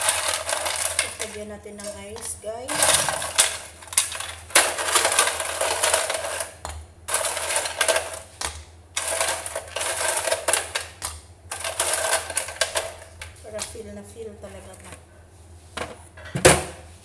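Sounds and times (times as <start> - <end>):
ice cubes clattering: 0.0 - 8.3, 9.0 - 13.3.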